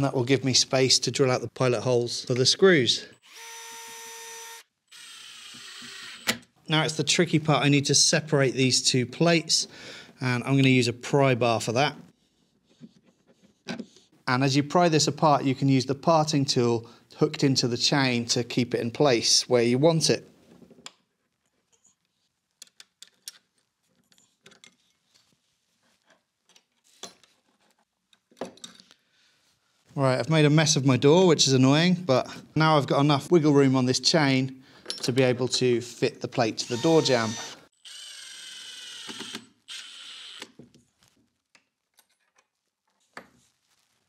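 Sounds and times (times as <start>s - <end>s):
cordless driver whirring: 36.6s - 40.4s.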